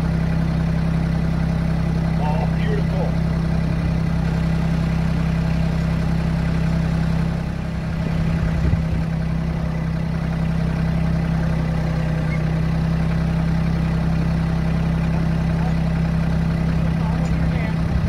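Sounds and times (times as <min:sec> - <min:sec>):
tractor engine idling: 0:00.0 - 0:18.0
short low bump: 0:07.9 - 0:09.1.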